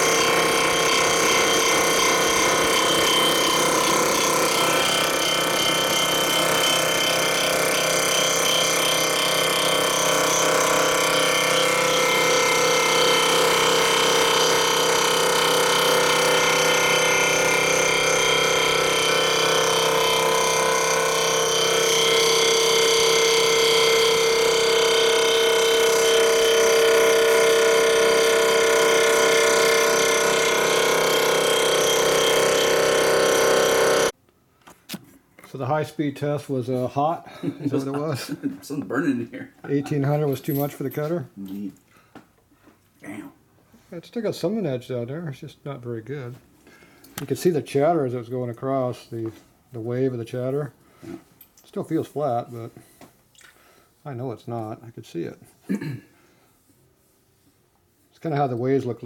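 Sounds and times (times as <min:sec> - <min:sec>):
cutter head machining whine: 0:00.0 - 0:34.1.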